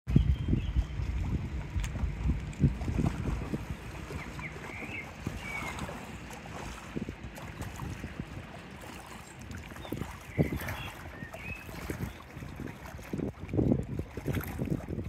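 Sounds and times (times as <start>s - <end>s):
wind gusting on microphone: 0.1s - 15.0s
waves lapping against rocks: 0.6s - 15.0s.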